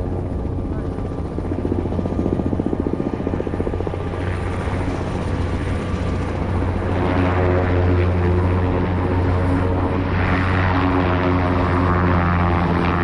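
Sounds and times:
helicopter rotor beating: 0.0 - 13.0.

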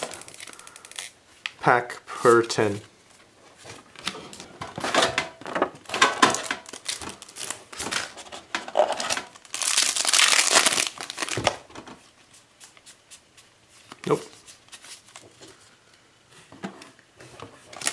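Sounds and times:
foil pack tearing open: 0.0 - 1.2, 6.3 - 11.6
foil wrapper crinkling: 0.0 - 1.2, 5.9 - 11.7.

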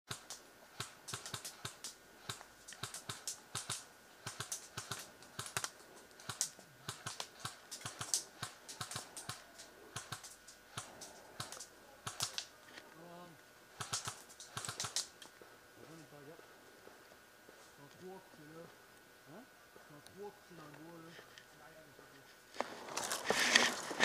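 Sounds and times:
sharp irregular clicks and snaps: 0.1 - 12.8, 13.7 - 15.4
faint steady background noise: 0.1 - 24.0.

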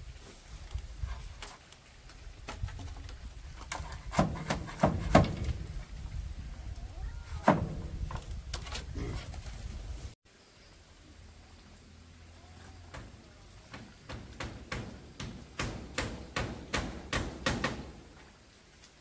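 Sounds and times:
bamboo panels knocking and clattering: 0.6 - 5.8, 7.4 - 9.5, 12.9 - 18.2.

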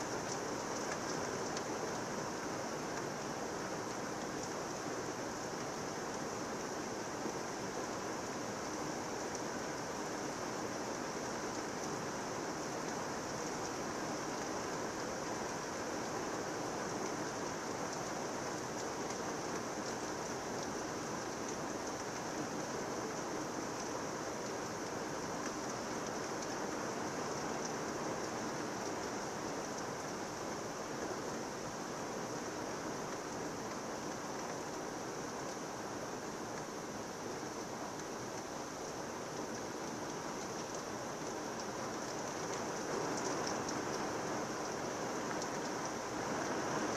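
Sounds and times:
heavy rain pouring: 0.0 - 46.9.

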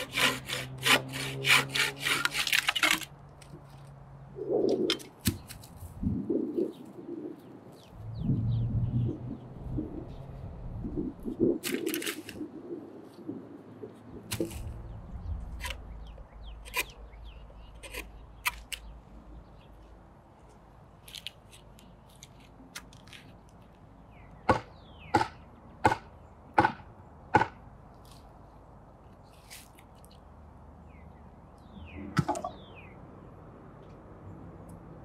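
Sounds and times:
knife chopping wood: 24.5 - 26.8, 27.4 - 27.6.

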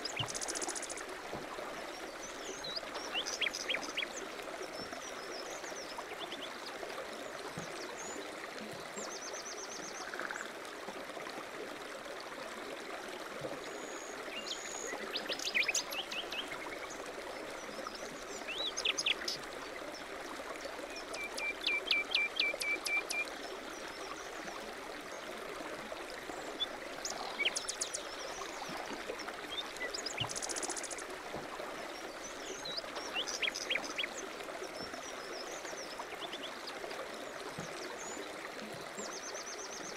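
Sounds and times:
stream running: 0.0 - 39.9
songbirds chirping and trilling: 2.1 - 4.2, 32.0 - 36.8.

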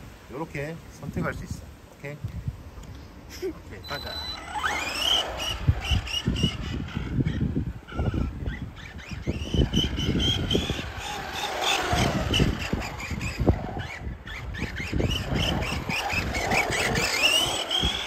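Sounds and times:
rc truck motor whining: 3.8 - 18.0.

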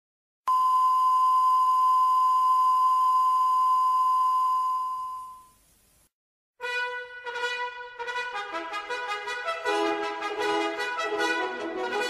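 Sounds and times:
sine test tone: 0.5 - 5.8.

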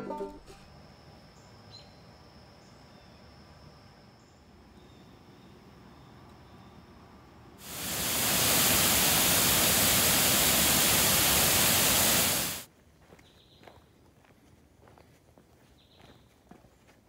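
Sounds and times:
water rushing over waterfall: 7.6 - 12.7
footsteps on dirt trail: 12.7 - 17.0.

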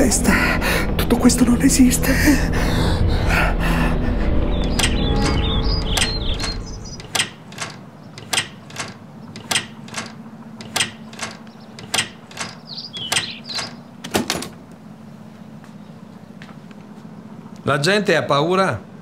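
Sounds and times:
door latch clicking: 4.6 - 14.6.

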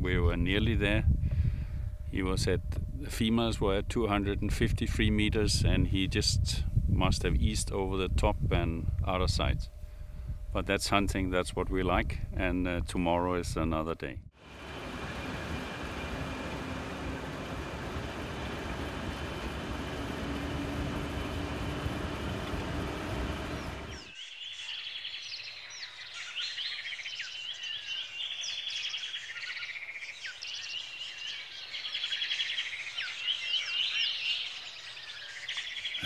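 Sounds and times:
steady rushing noise: 14.4 - 24.1
birds chirping and trilling: 14.5 - 36.0.

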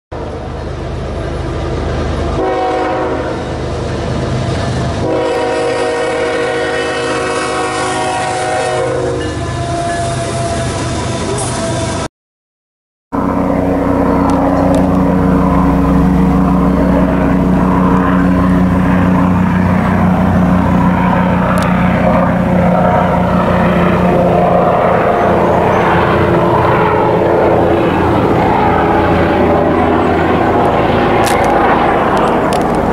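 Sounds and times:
helicopter engine and rotor noise: 13.2 - 32.9
steady low hum: 13.2 - 32.9.

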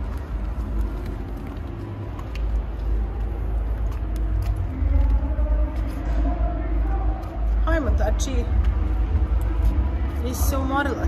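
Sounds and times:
faint voices: 0.0 - 11.0
steady low rumble: 0.0 - 11.0.

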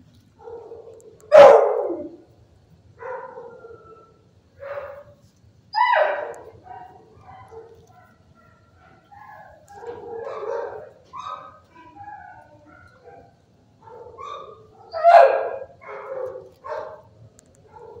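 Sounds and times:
dogs barking and yipping: 0.4 - 2.2, 3.0 - 18.0.

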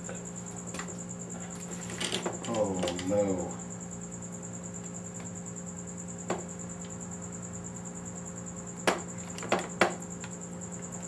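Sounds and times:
electrical hum: 0.0 - 11.0.

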